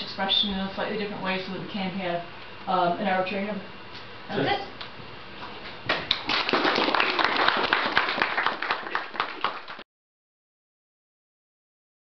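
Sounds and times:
audience applauding: 0:06.0 - 0:09.8.

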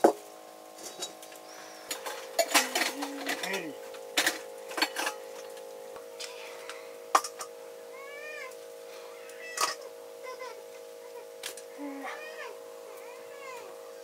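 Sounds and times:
steady hum: 0:00.0 - 0:14.0
small animal mewing: 0:08.0 - 0:13.8.

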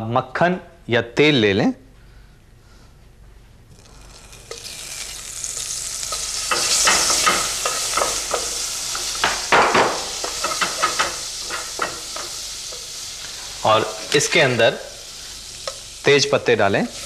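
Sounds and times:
butter sizzling in a pot: 0:03.7 - 0:17.0.

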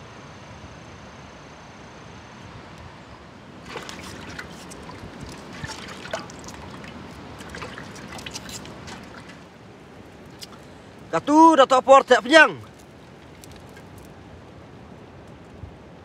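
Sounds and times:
wind hiss: 0:00.0 - 0:16.0
water splashing in steel pot: 0:03.6 - 0:09.6, 0:10.2 - 0:10.7.

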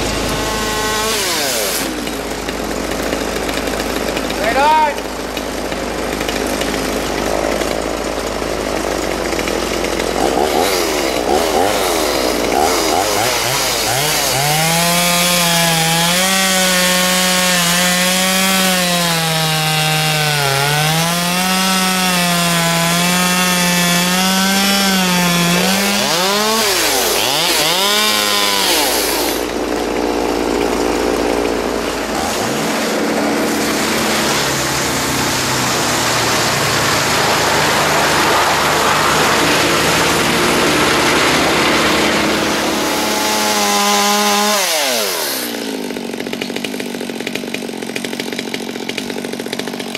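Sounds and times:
chainsaw cutting: 0:00.0 - 0:49.9
wood chipper engine running: 0:00.0 - 0:49.9.

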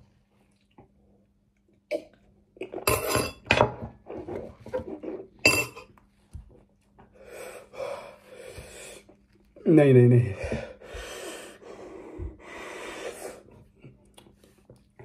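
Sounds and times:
fork clinking against ceramic bowl: 0:05.5 - 0:05.9.

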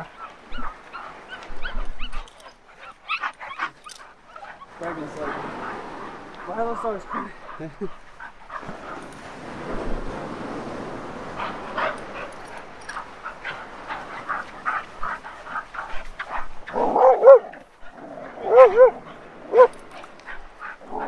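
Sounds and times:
dogs whining and yipping: 0:00.1 - 0:05.0, 0:11.4 - 0:17.6, 0:18.2 - 0:21.0.

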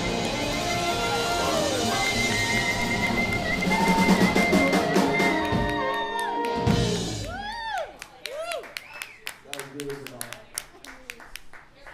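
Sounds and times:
blues-rock band playing: 0:00.0 - 0:07.4
drum fill: 0:00.0 - 0:07.6.

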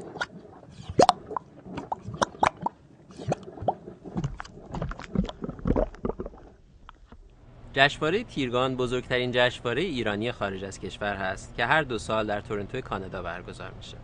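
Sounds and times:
bubbly pitch glides: 0:00.0 - 0:06.7.

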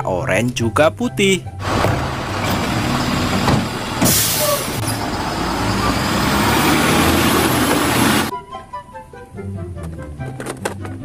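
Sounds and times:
diesel engine rumbling: 0:01.4 - 0:08.3
air hiss: 0:04.0 - 0:04.8.

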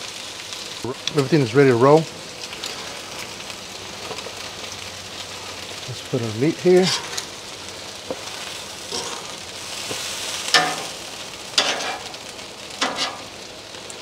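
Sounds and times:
food sizzling on griddle: 0:00.0 - 0:14.0
metal tongs clacking on steel: 0:10.5 - 0:10.9, 0:12.8 - 0:13.2.

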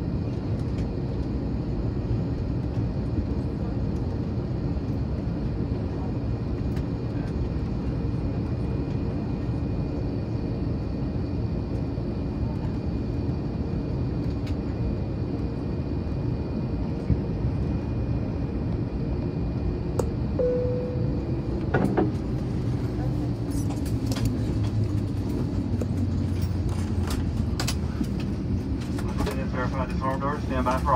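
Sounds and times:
jet engine cabin rumble: 0:00.0 - 0:30.9
faint steady whine: 0:00.2 - 0:24.6
brief low tone: 0:20.4 - 0:22.0.

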